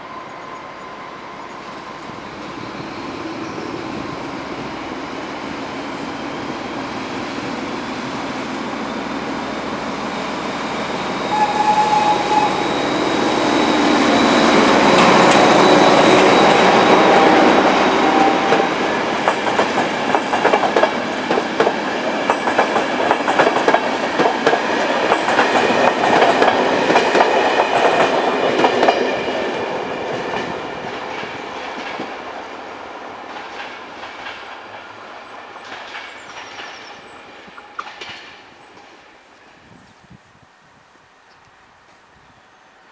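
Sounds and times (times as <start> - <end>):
diesel locomotive engine passing: 0.0 - 39.7
train wheels clickety-clack: 11.3 - 32.5, 33.2 - 39.0.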